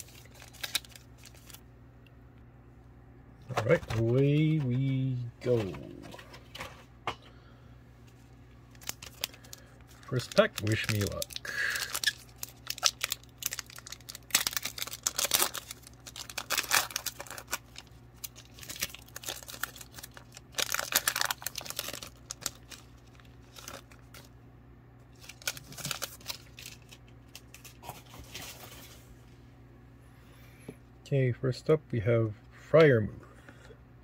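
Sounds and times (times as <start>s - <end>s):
foil wrapper tearing and rustling: 0.0s - 1.6s, 8.7s - 24.3s, 25.1s - 29.0s.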